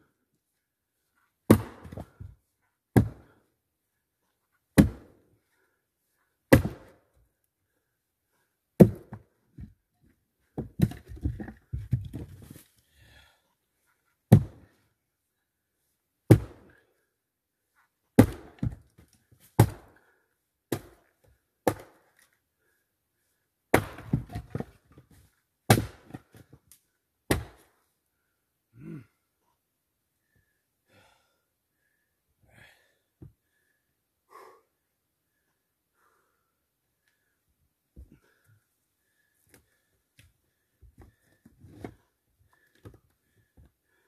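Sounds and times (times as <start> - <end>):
axe chopping wood: 1.5 - 2.1, 2.9 - 3.3, 4.8 - 5.1, 6.5 - 6.9, 8.8 - 9.2, 10.6 - 11.5, 14.3 - 14.6, 16.3 - 16.7, 18.2 - 18.8, 19.6 - 19.9, 20.7 - 21.0, 21.6 - 22.0, 23.7 - 24.7, 25.7 - 26.4, 27.3 - 27.6.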